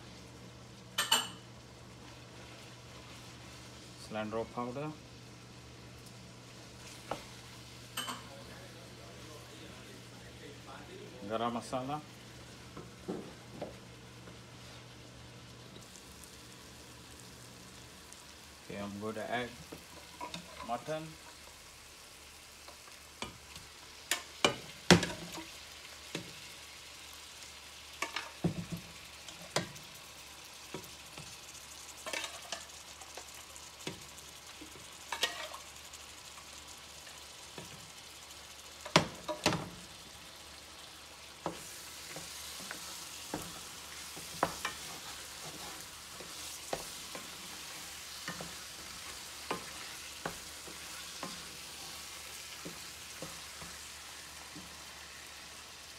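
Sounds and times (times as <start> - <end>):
meat sizzling in pan: 0.0 - 55.9.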